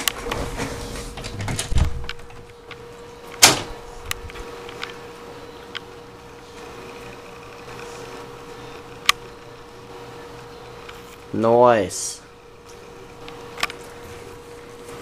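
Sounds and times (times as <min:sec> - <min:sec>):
door opening: 0:00.0 - 0:02.6, 0:03.3 - 0:04.8
faint steady hum: 0:00.0 - 0:15.0
microphone handling rumble: 0:00.2 - 0:02.5.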